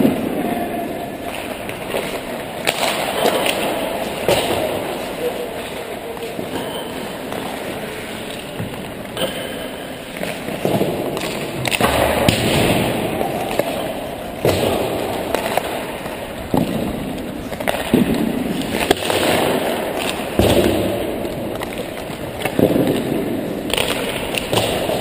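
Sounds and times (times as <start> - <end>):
pucks cracking against sticks: 1.1 - 25.0
skate blades scraping on ice: 13.2 - 25.0.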